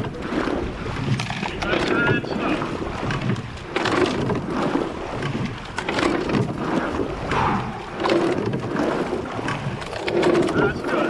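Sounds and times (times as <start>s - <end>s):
water rushing along hull: 0.0s - 11.0s.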